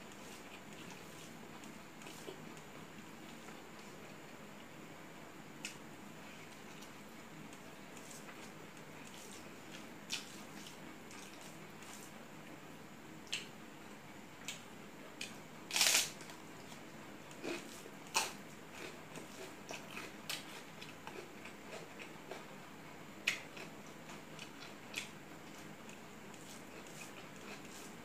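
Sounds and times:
person chewing food: 16.6 - 22.5, 23.2 - 28.0.

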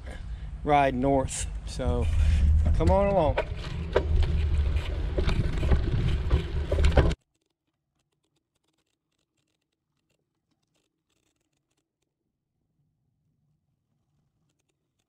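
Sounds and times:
bicycle rattling on dirt path: 1.8 - 7.2.

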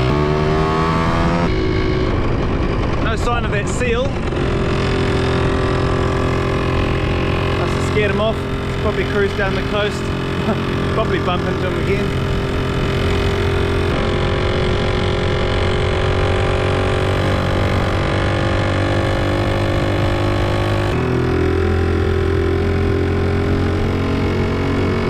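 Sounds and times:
motorbike engine running: 0.0 - 25.0.

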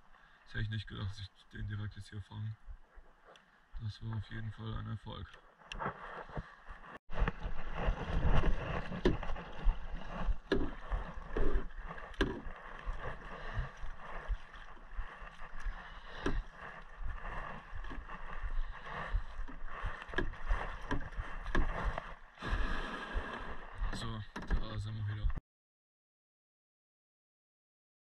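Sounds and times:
hull running onto gravel: 7.1 - 22.0
paddle splashing strokes: 7.1 - 24.4
water lapping against hull: 8.1 - 24.9.

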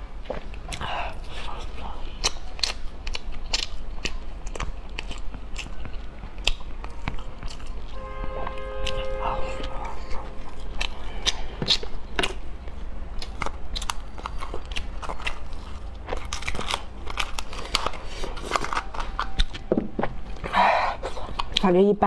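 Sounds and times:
chewing: 0.2 - 21.7.

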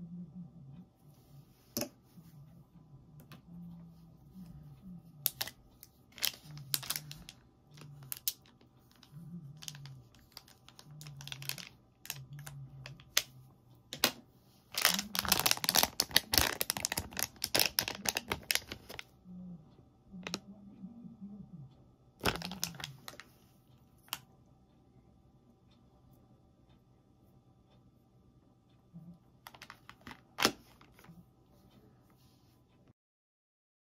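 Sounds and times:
plastic foil bag crinkling: 5.3 - 13.2, 14.7 - 19.0, 22.2 - 23.3, 29.5 - 31.0.

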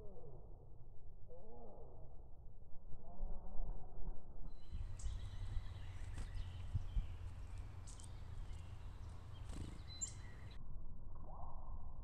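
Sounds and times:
low outdoor rumble: 4.2 - 12.0
songbirds chirping: 4.5 - 10.6.

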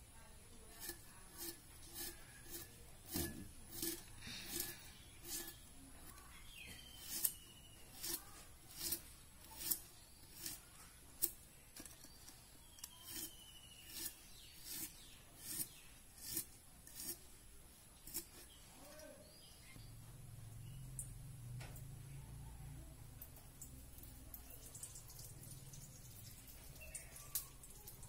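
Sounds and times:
knife slicing gourds: 0.7 - 10.6, 11.2 - 17.2.

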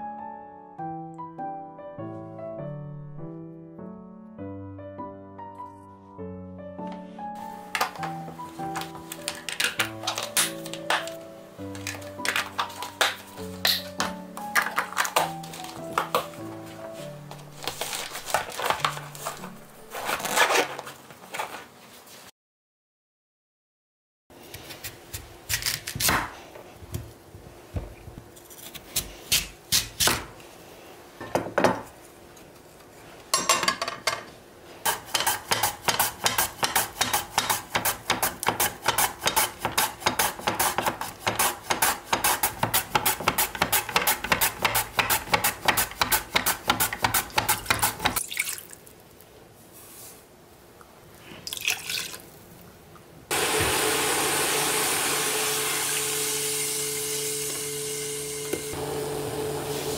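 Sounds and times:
pouring into saucepan: 48.2 - 48.9, 51.4 - 52.3.

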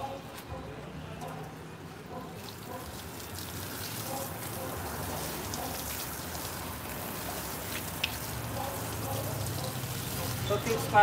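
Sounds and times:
hose water splashing on concrete: 2.1 - 11.0.

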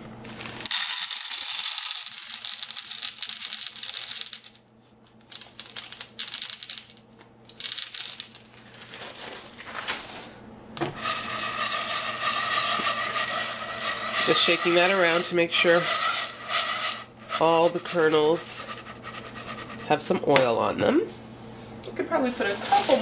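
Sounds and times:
kernels rattling in shaken pot: 0.4 - 4.6, 5.2 - 9.1, 10.8 - 20.2, 22.3 - 23.0
popcorn kernels pouring into pot: 0.4 - 4.6, 5.3 - 7.0, 7.6 - 8.4, 10.8 - 20.0.

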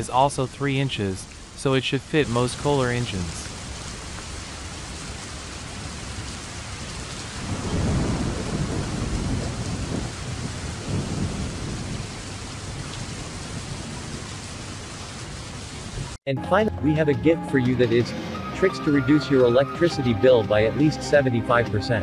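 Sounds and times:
rain hiss: 0.0 - 16.2
thunder rolling: 7.3 - 14.3.

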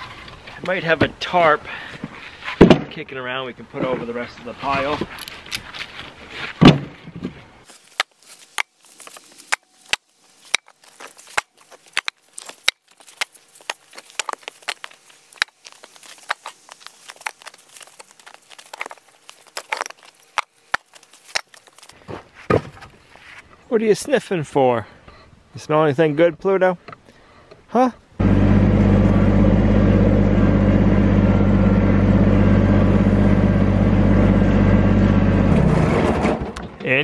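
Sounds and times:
logs knocking together: 2.0 - 3.0, 6.5 - 23.0.

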